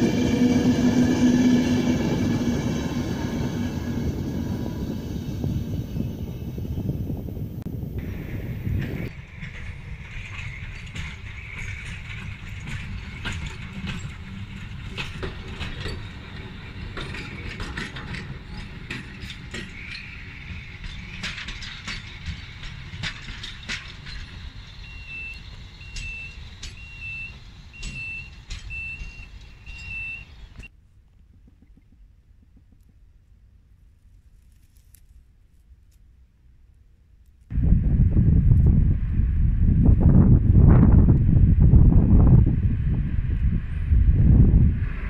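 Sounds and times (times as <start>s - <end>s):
low rumble: 0.0s - 13.6s, 37.5s - 45.0s
sharp clicks and clanks: 8.8s - 24.4s
level crossing signal beeping: 24.8s - 30.7s.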